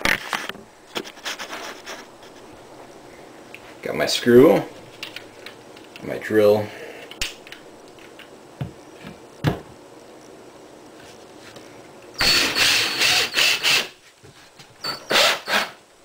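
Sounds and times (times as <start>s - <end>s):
cordless drill driving screw: 12.2s - 13.9s, 14.9s - 15.8s.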